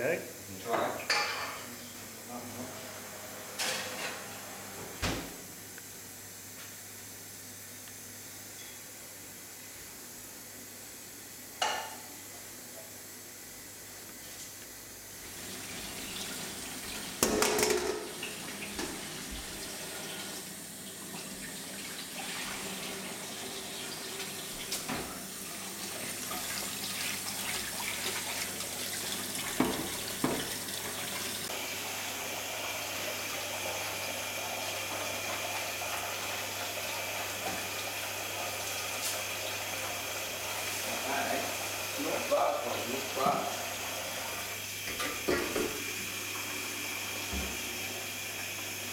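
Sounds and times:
knocks of things in sink: 0:17.2 - 0:18.2, 0:29.5 - 0:30.5
tap running into steel sink: 0:17.2 - 0:19.5, 0:29.4 - 0:30.6, 0:47.3 - 0:47.6.

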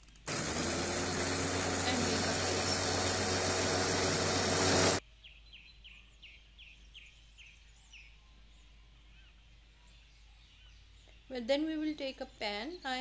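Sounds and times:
electric blender running: 0:00.0 - 0:05.0.

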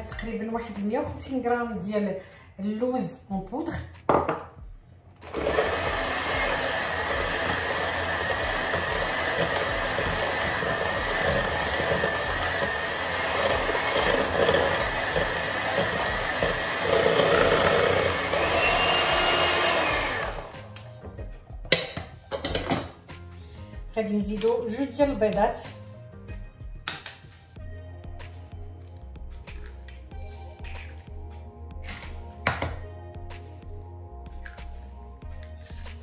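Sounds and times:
electric mixer whining: 0:05.2 - 0:20.8.

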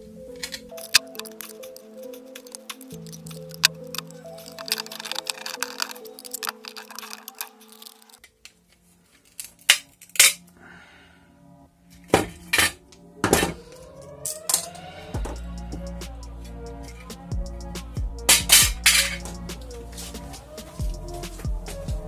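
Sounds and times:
aluminium foil crackling: 0:00.4 - 0:08.4.

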